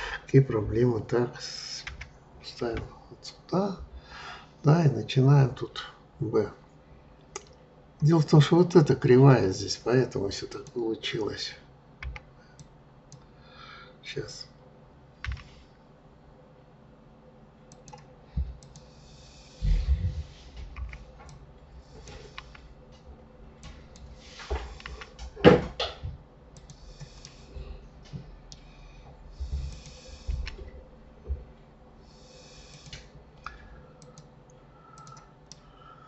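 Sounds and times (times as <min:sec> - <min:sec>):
keyboard keystrokes: 0:15.2 - 0:15.5
mouse clicks: 0:35.0 - 0:35.6.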